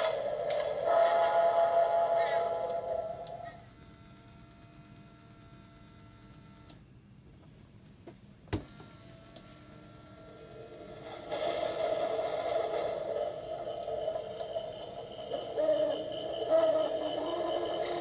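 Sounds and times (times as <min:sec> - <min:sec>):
halloween prop playing a tune: 0:00.0 - 0:03.6, 0:10.4 - 0:18.0
small electric motor humming: 0:02.4 - 0:06.8, 0:08.6 - 0:18.0.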